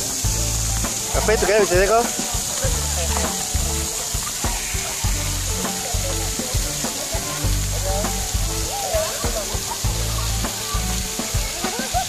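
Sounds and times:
music with bass and beat: 0.0 - 12.0
water jets hissing: 0.0 - 12.0.

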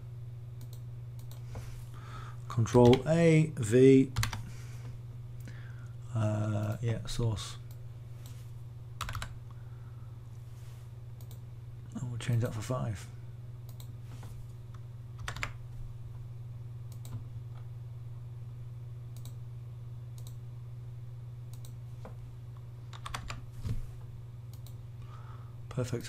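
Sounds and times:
steady low hum: 0.0 - 26.0
keyboard keystrokes and mouse clicks: 2.7 - 3.1, 9.0 - 9.4, 15.2 - 15.6, 16.9 - 17.7, 19.2 - 19.4, 20.2 - 20.4, 22.9 - 23.8.

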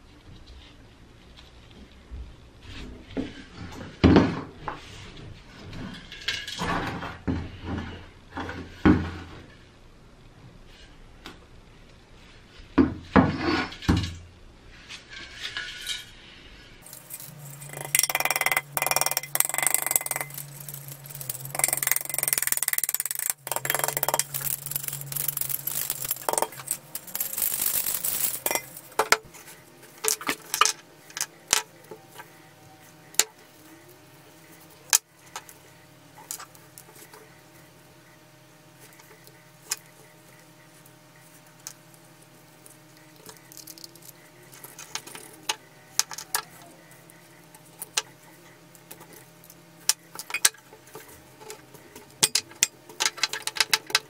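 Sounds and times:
rust flakes rattling and scraping: 14.7 - 32.2, 41.2 - 46.6.

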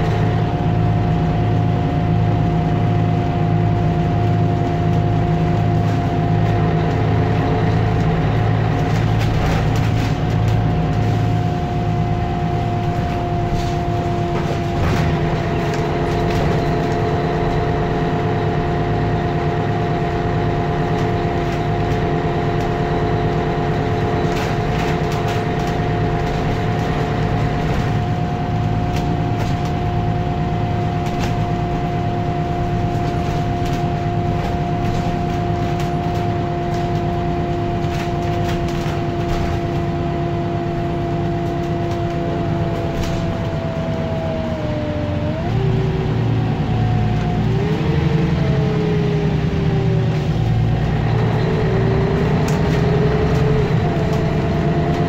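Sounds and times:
bus diesel engine drone: 0.0 - 55.0.

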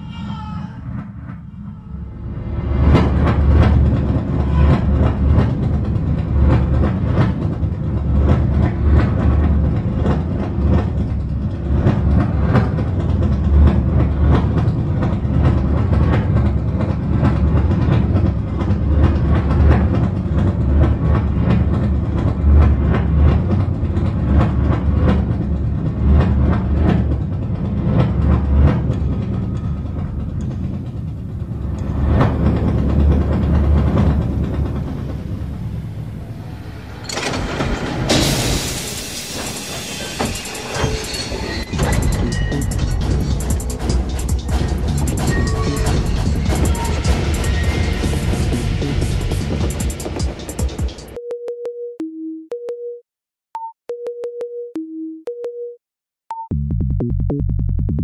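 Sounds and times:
subway train rumbling on rails: 0.0 - 51.2
wheels clattering over rail joints: 2.6 - 51.2.

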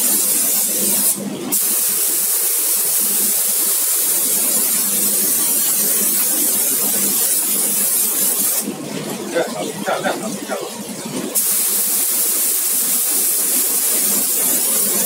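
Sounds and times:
spray gun hissing: 0.0 - 4.8, 6.0 - 8.7, 11.4 - 15.0.

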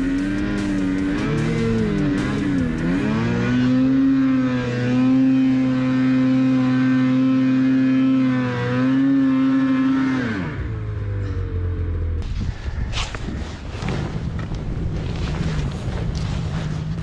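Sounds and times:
snowmobile engine revving: 0.0 - 12.2.

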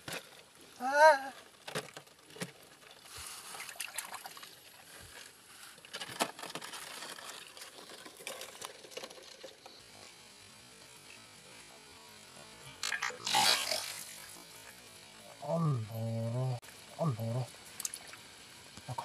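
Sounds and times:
stream water trickling: 3.3 - 4.9, 17.6 - 18.4.

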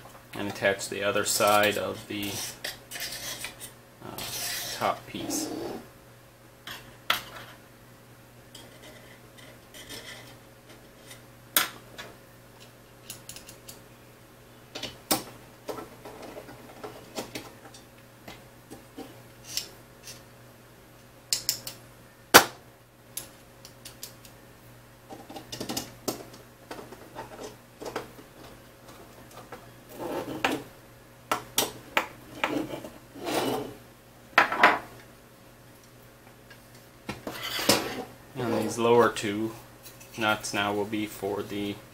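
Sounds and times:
light scraping: 1.4 - 5.8.

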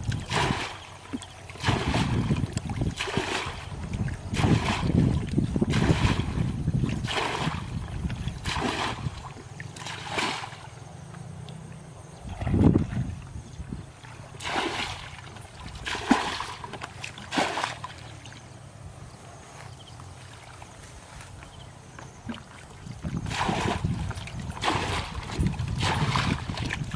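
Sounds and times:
bucket scooping water: 0.0 - 18.6, 20.2 - 26.9
water splashing: 0.0 - 18.6, 22.0 - 26.9.

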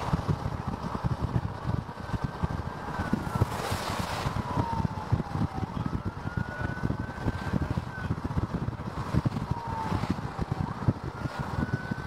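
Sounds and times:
vehicle road noise: 0.0 - 12.0
wind buffeting microphone: 0.0 - 12.0.

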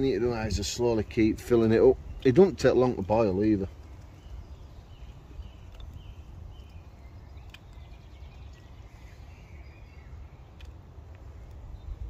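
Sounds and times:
fire burning with low rumble: 0.0 - 12.0
small crackles: 1.0 - 9.5, 10.2 - 12.0
faint bird chirps: 1.7 - 10.8.

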